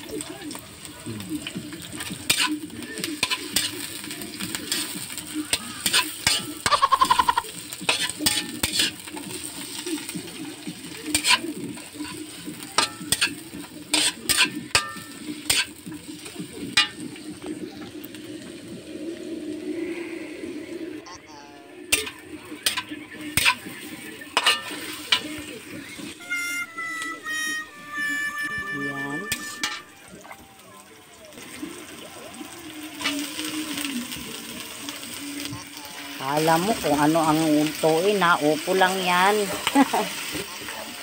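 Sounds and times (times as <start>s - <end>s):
onions sizzling in oil: 0.0s - 20.9s, 21.6s - 41.0s
metal spatula scraping wok: 1.5s - 17.3s, 21.9s - 30.2s.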